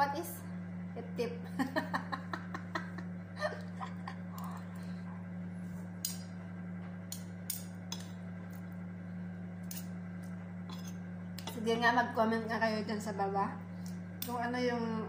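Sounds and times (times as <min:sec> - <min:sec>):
low hum: 0:00.0 - 0:15.0
cutlery scraping a plate: 0:10.7 - 0:11.6.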